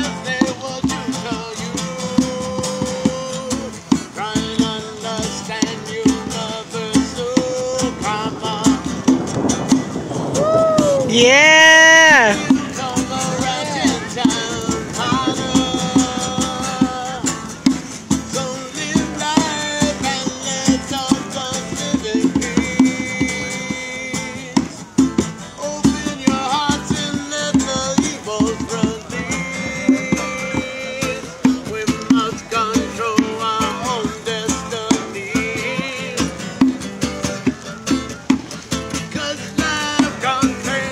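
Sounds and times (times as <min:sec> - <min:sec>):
cajon beat: 0:00.0 - 0:40.9
guitar melody: 0:00.0 - 0:40.9.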